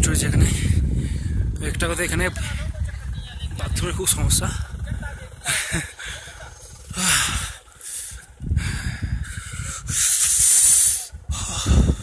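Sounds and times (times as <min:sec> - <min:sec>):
wind hiss on microphone: 0:06.7 - 0:12.0.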